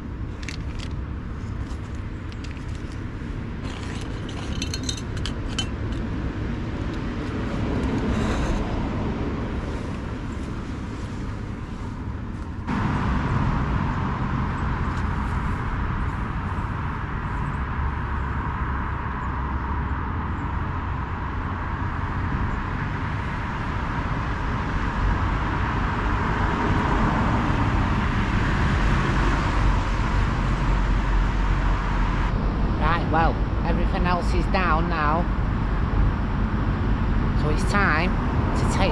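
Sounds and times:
road traffic rushing: 0:00.0 - 0:38.9.

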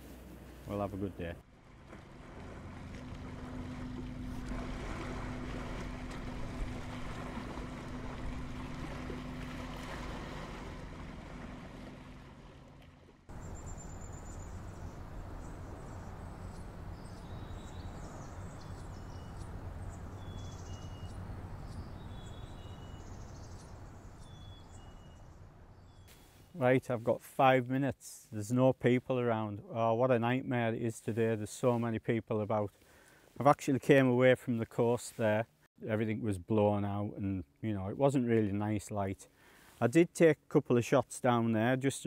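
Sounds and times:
water noise: 0:00.0 - 0:26.5
wind: 0:00.0 - 0:42.0
low engine hum: 0:01.3 - 0:26.0
high bird chirps: 0:13.4 - 0:26.3
outdoor hiss: 0:26.1 - 0:26.6.

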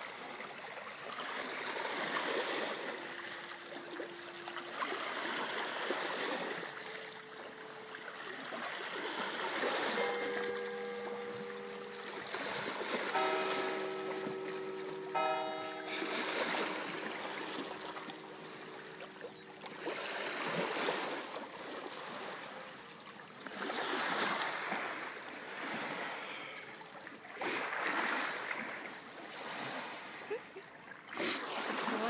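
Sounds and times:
waves lapping on rocky shore: 0:00.0 - 0:32.0.

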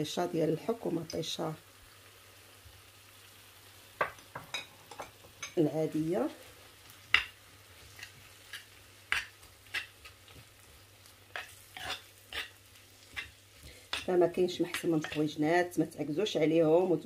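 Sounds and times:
spoon scraping a clay pot: 0:11.4 - 0:13.3.

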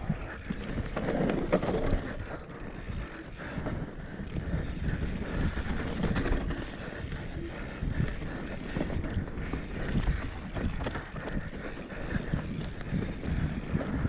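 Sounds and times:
bike rattling over bumps: 0:00.0 - 0:14.0
tyres on loose dirt: 0:00.0 - 0:14.0
wind on microphone: 0:00.0 - 0:14.0.

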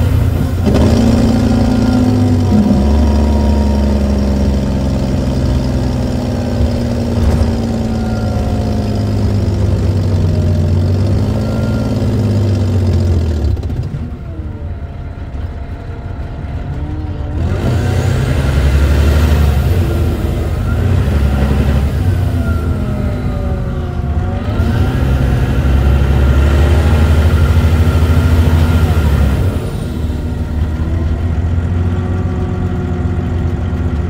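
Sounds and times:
diesel coach engine droning: 0:00.0 - 0:34.0.

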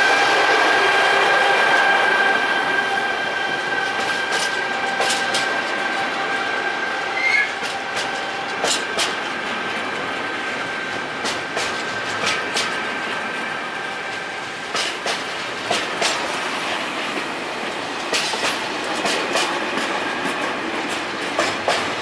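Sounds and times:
train wheels rumbling: 0:00.0 - 0:22.0
wheels clicking over rail joints: 0:03.8 - 0:05.9, 0:07.2 - 0:10.2, 0:11.0 - 0:13.3, 0:14.1 - 0:16.4, 0:17.0 - 0:22.0.

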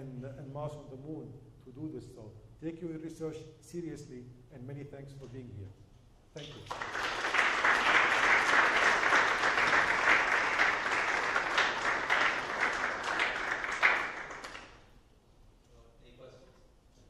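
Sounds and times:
audience applauding: 0:06.4 - 0:14.9.

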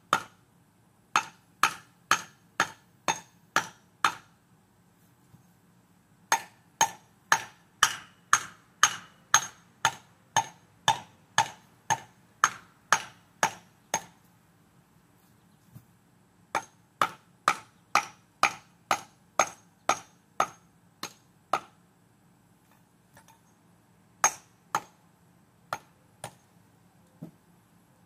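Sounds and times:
hammer striking concrete block: 0:00.1 - 0:00.4, 0:01.1 - 0:04.3, 0:06.3 - 0:14.2, 0:16.5 - 0:21.8, 0:24.2 - 0:25.0, 0:25.7 - 0:26.4.

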